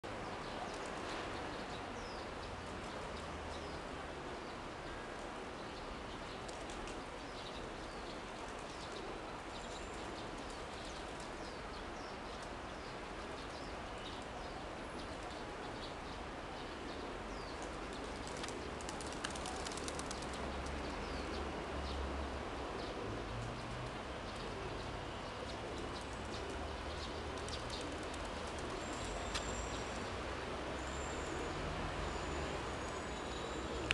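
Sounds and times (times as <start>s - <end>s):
outdoor background noise: 0.0s - 33.9s
pigeon wing flaps: 18.0s - 20.8s.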